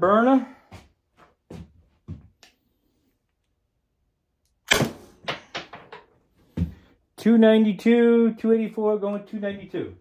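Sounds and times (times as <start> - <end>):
launcher shot pop: 4.7 - 5.2.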